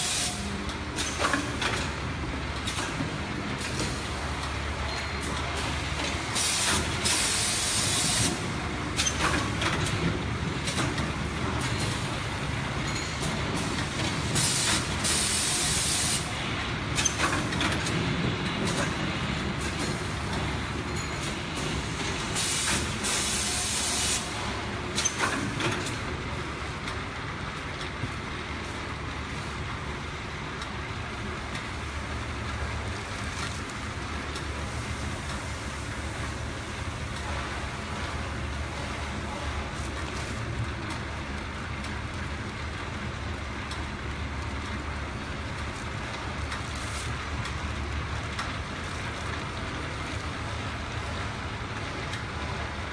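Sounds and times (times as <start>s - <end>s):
steady mechanical noise: 0.0s - 52.9s
compressed air hiss bursts: 14.4s - 16.3s, 22.4s - 24.3s.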